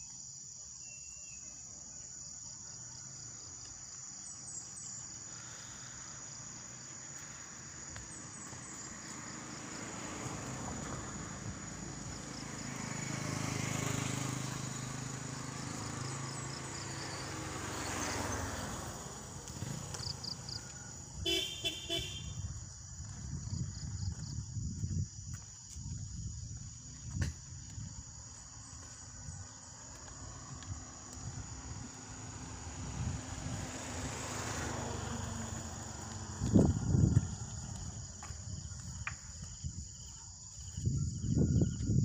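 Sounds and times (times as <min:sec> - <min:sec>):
crickets trilling: 0:00.0 - 0:42.0
vehicles passing: 0:02.8 - 0:25.2, 0:25.8 - 0:40.5
vehicle horn toots: 0:21.2 - 0:22.4.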